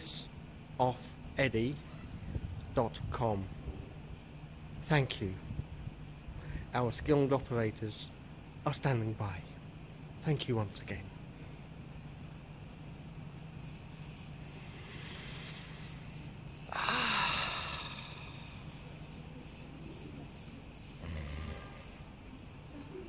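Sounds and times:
insects shrilling: 0:11.4 - 0:22.7.

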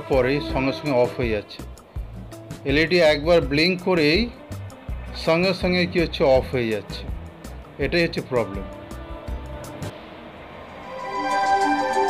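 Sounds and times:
background music: 0:00.0 - 0:09.9, 0:10.8 - 0:12.0.

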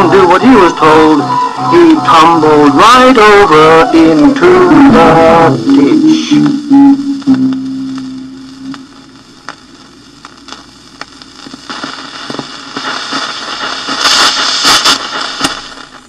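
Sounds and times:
record stylus ticking: 0:00.0 - 0:16.0
vinyl surface hiss and crackle: 0:00.0 - 0:16.0
music note: 0:06.7 - 0:08.8.

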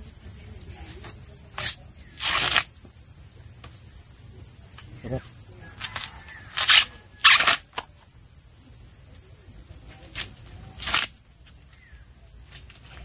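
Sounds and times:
insects droning: 0:00.0 - 0:13.0
plants rustling: 0:00.7 - 0:02.9, 0:04.7 - 0:07.9.

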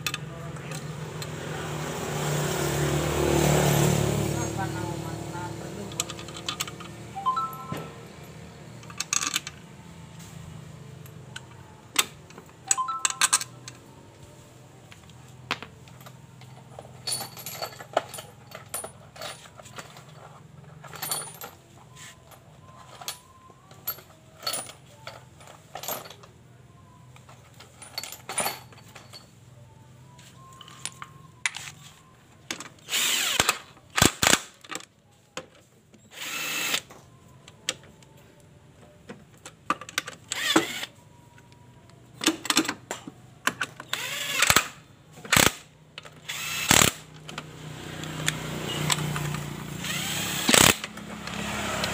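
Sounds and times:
cordless drill running: 0:32.9 - 0:33.4, 0:36.2 - 0:36.8, 0:40.4 - 0:40.9, 0:46.3 - 0:47.0, 0:49.8 - 0:50.8.

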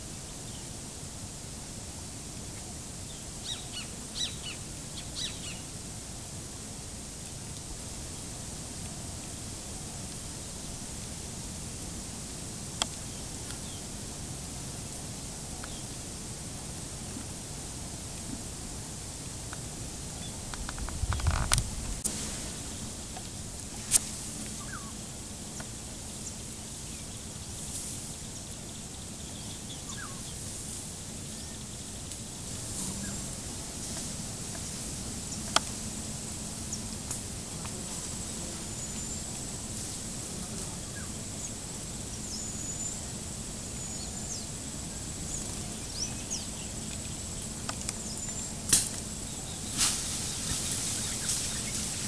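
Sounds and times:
steady hiss: 0:00.0 - 0:52.0
faint bird calls: 0:24.6 - 0:25.0.

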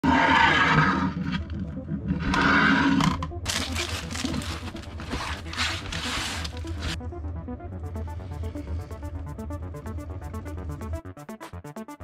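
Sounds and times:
rough roar-like rasp: 0:00.0 - 0:01.5, 0:02.1 - 0:03.1
plastic film crackling: 0:03.5 - 0:07.0.

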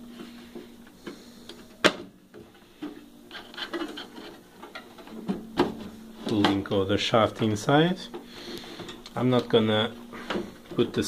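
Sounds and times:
light rubbing and scraping: 0:02.7 - 0:05.0.

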